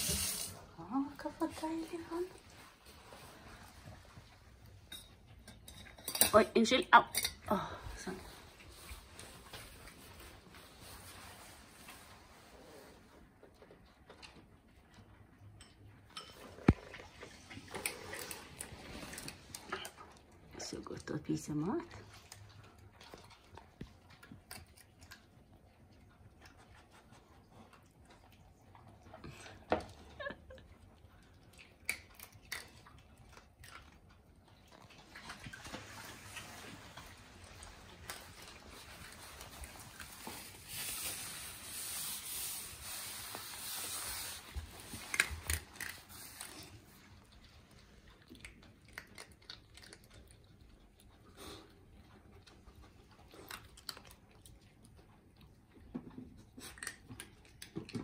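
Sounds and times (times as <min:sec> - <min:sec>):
rustling hiss: 0:00.0 - 0:00.8
dog eating dry kibble: 0:12.9 - 0:42.0, 0:42.8 - 0:58.0.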